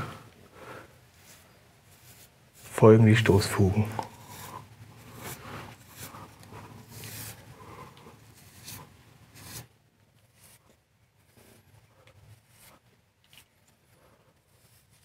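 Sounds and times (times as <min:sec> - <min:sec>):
brush scraping mortar: 0:01.1 - 0:09.7.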